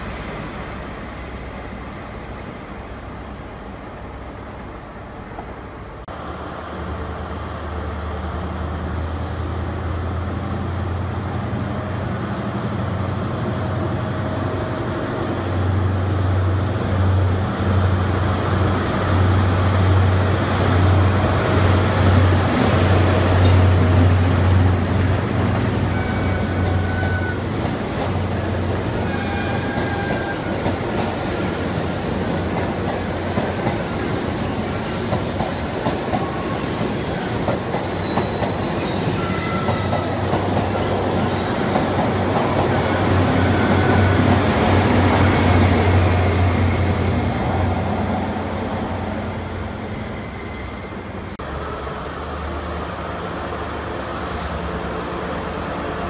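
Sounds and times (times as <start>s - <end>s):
diesel train engine drone: 0.0s - 56.0s
train wheel squeals: 25.8s - 27.5s, 28.9s - 31.6s, 32.9s - 44.4s, 49.9s - 51.2s.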